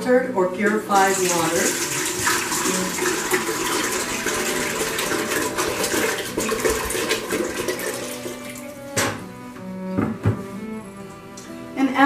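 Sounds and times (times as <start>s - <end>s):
water pouring into pot: 0.9s - 8.9s.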